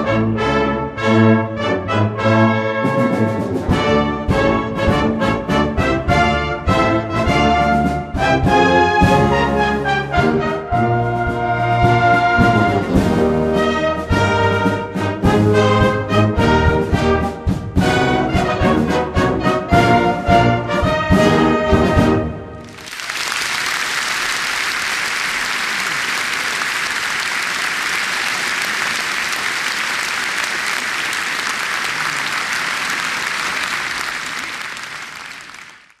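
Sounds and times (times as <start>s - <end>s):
concert band playing a march: 0.0s - 23.4s
audience applauding: 22.6s - 36.0s.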